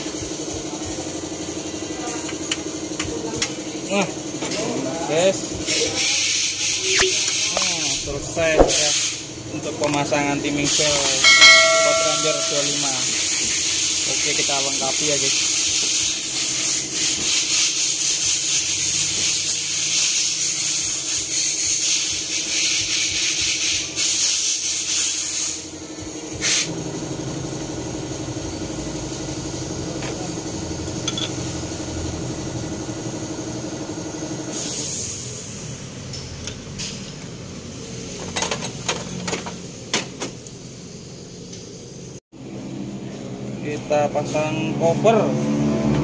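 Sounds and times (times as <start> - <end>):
hand tools clinking on engine: 11.0 - 13.1.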